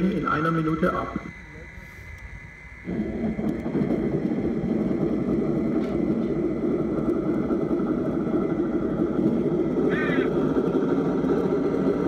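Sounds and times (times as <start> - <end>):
diesel engine idling through loudspeaker: 9.8 - 10.3.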